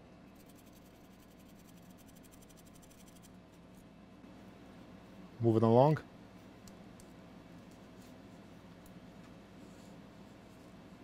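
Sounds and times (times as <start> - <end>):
fast scratching patter: 0.4 - 3.4.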